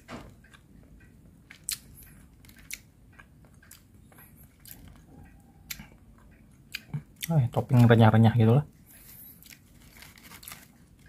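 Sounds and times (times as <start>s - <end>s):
chewing crisp food: 0.4s - 8.0s.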